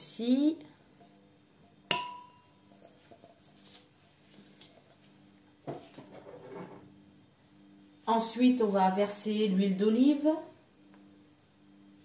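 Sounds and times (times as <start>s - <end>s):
metal bowl clanking and ringing: 1.9s - 3.3s
soft knock and handling rustle: 2.8s - 6.9s.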